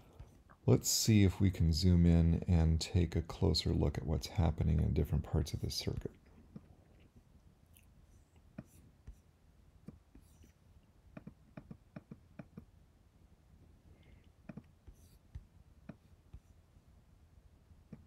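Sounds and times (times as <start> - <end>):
computer mouse clicks: 11.1 - 12.7.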